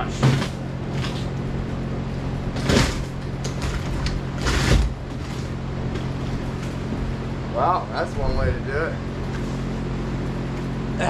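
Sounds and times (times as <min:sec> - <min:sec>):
steady low hum: 0:00.0 - 0:11.0
wood cracking and scraping: 0:02.4 - 0:06.9.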